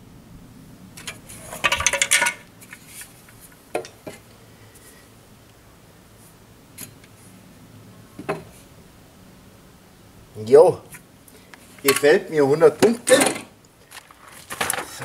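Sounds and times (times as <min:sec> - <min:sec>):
tools rattling and clinking: 0:01.0 - 0:04.0, 0:11.8 - 0:12.2.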